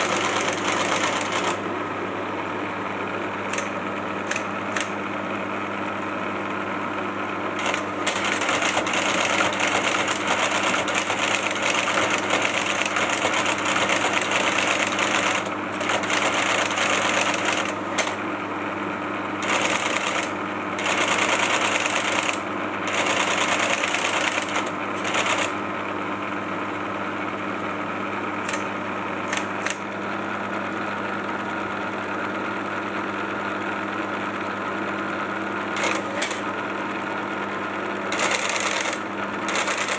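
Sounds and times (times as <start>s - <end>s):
typewriter mechanism chattering: 0.0s - 1.6s, 3.5s - 4.9s, 7.6s - 18.2s, 19.4s - 25.6s, 28.4s - 28.7s, 29.3s - 29.8s, 35.8s - 36.4s, 38.1s - 39.9s
computer hum: 0.0s - 6.8s, 7.5s - 18.3s, 19.3s - 25.8s, 27.7s - 30.5s, 35.7s - 39.9s.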